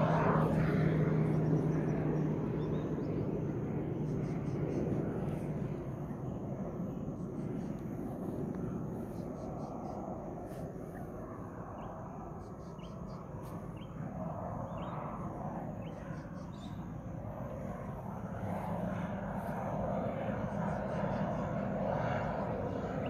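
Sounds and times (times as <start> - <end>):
turboprop engine drone: 0.0 - 23.0
bird chirps: 11.8 - 13.2.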